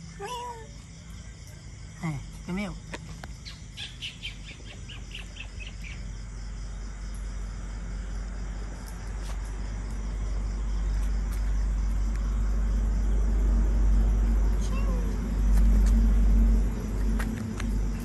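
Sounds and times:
small animal high chirps: 3.4 - 6.0
low vehicle rumble: 3.6 - 18.0.

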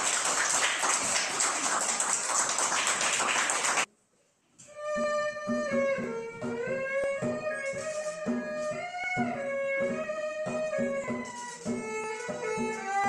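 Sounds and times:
audience applause: 0.0 - 3.9
erhu bowed melody: 4.7 - 13.0.

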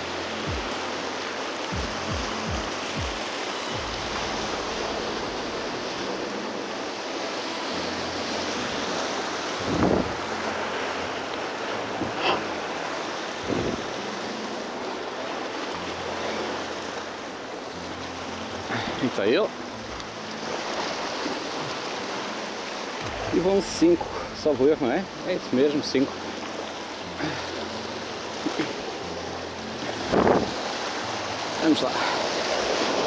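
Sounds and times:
surf breaking over rocks: 0.0 - 33.0
wind buffeting microphone: 9.6 - 10.3, 13.4 - 13.9, 30.0 - 30.7.

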